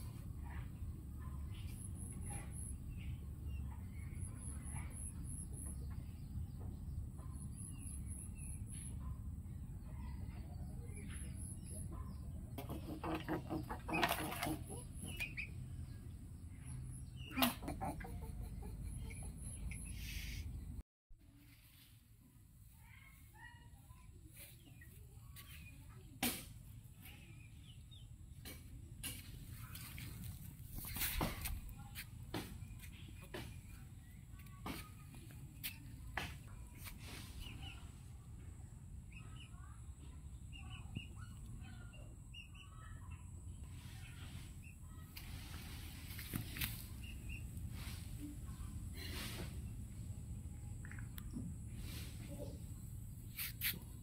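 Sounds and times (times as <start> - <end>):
chickens clucking: 11.7 - 15.9, 17.1 - 20.4
knocks and rustles: 28.4 - 33.8.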